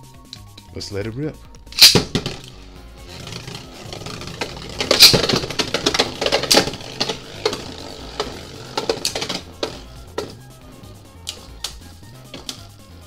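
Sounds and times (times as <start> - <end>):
spinning tops clacking together: 1.8 - 10.4.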